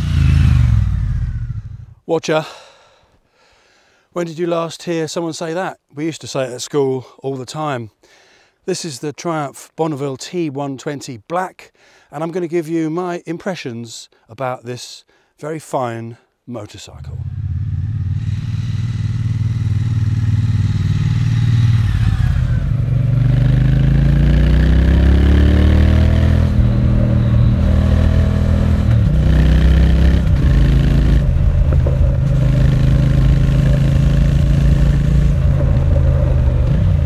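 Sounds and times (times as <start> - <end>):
motorcycle engine accelerating: 0.0 - 2.0, 17.1 - 37.0.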